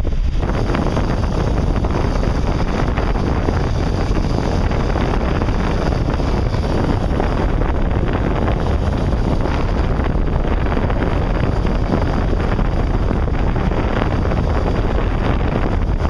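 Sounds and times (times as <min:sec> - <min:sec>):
boat engine rumble: 0:00.0 - 0:16.0
churning wake rushing: 0:00.0 - 0:16.0
wind buffeting microphone: 0:00.0 - 0:16.0.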